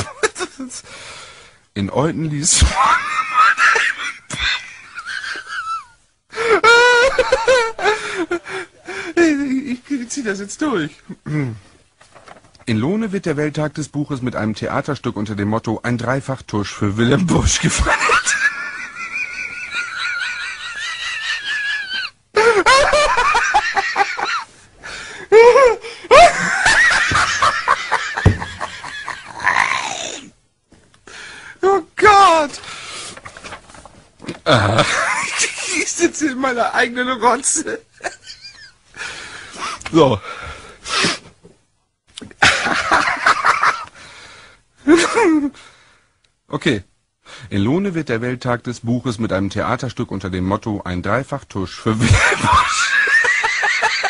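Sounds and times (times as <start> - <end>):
man wailing laugh: 2.7 - 8.5, 17.9 - 24.5, 25.3 - 30.0.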